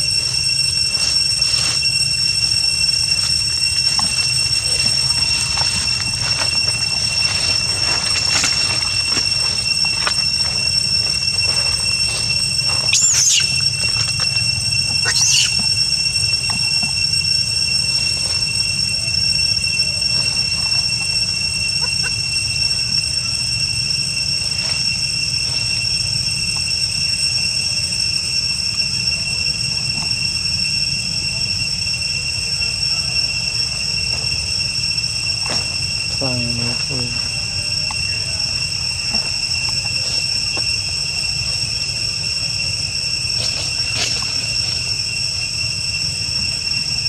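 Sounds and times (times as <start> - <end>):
high-pitched insect drone: 0.0 - 47.0
monkey calls falling in pitch: 12.8 - 13.6, 14.9 - 15.7.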